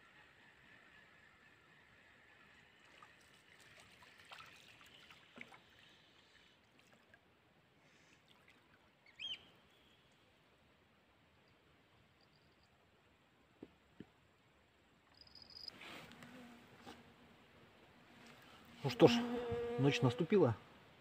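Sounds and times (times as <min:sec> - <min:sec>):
insect chirring: 0:15.1 - 0:15.7.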